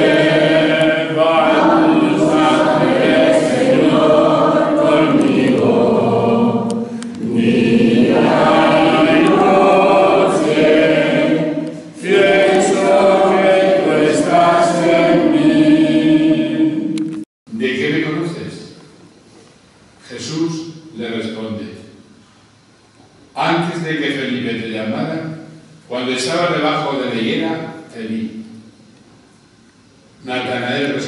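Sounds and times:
church choir singing: 0.0s - 17.2s.

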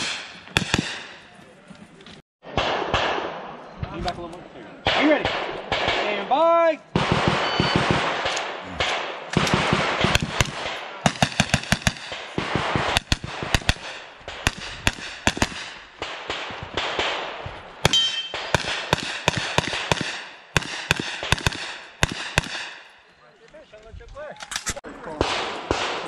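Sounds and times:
rapid carbine gunfire: 7.0s - 17.4s, 18.4s - 22.8s, 25.2s - 26.0s.

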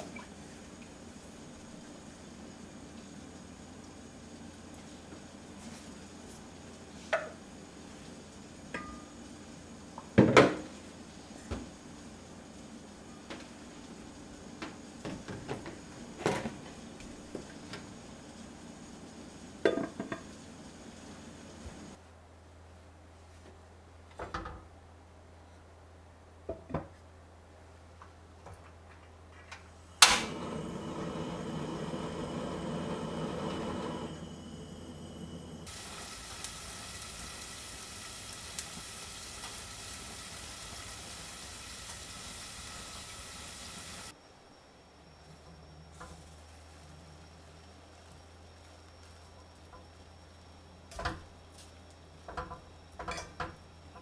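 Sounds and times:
gas burner hissing: 0.0s - 22.0s, 29.7s - 44.2s
gas stove igniter click: 30.0s - 30.6s
kitchen things clattering: 52.3s - 54.0s.

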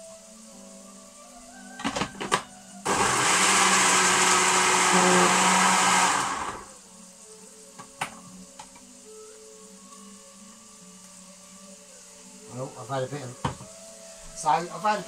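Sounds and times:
blender motor running: 2.9s - 6.8s.

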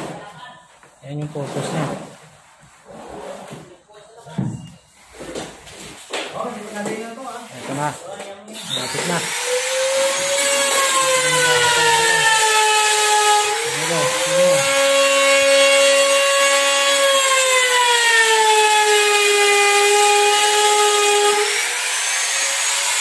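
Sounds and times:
trim router cutting wood: 8.5s - 23.0s.

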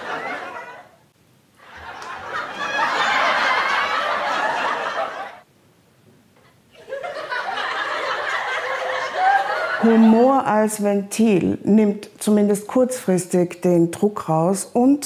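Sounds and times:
laughter: 0.0s - 1.0s, 1.6s - 5.4s, 6.7s - 10.2s.

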